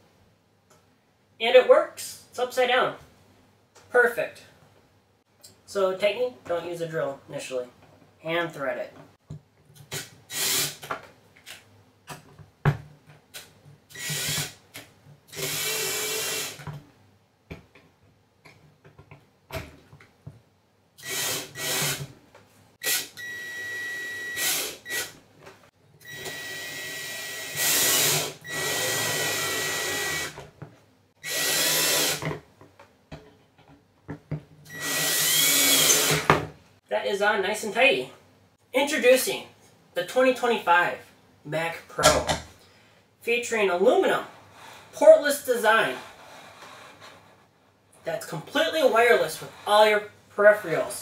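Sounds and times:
cordless drill driving screws: 9.9 - 10.8, 13.9 - 14.6, 15.3 - 16.6, 21.0 - 22.1, 22.8 - 25.1, 26.0 - 30.4, 31.2 - 32.3, 34.7 - 36.4.

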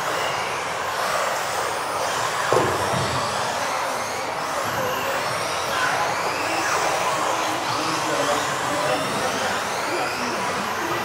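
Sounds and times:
rc car motors whining: 0.0 - 11.0
thud: 2.5 - 3.2.

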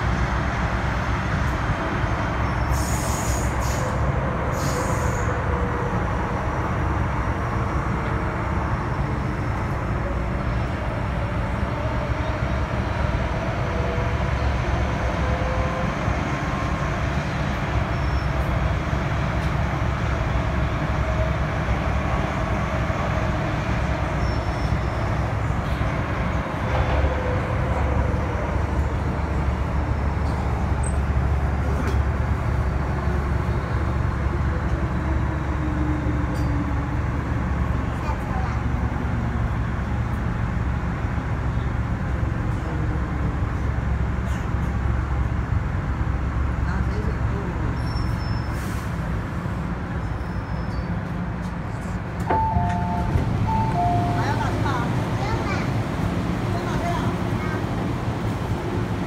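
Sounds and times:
faint train whine: 0.0 - 59.0
train wheels rumbling on track: 0.0 - 59.0
short hisses: 2.7 - 4.0.

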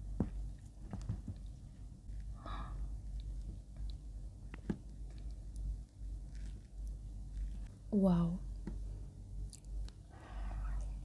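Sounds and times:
soft breath: 2.1 - 3.2, 10.0 - 11.0.

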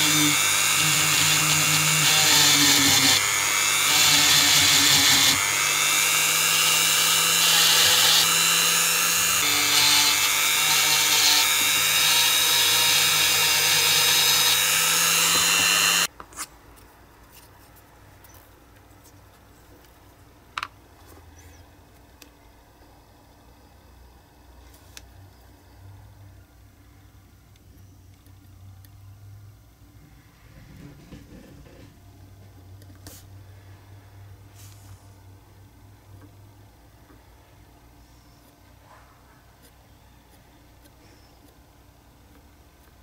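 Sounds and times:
rotary tool grinding metal: 0.0 - 16.1.

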